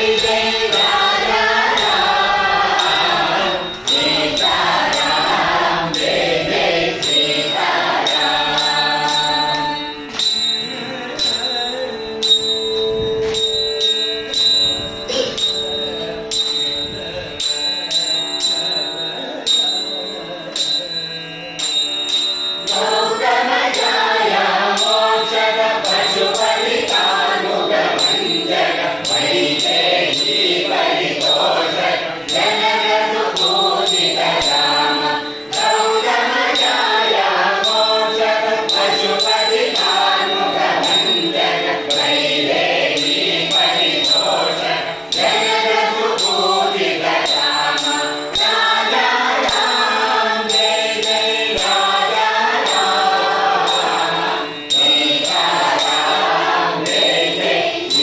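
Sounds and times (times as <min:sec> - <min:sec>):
women singing in unison: 0:00.0 - 0:10.1, 0:22.8 - 0:58.0
men's voices holding long notes: 0:00.0 - 0:13.1, 0:22.7 - 0:58.0.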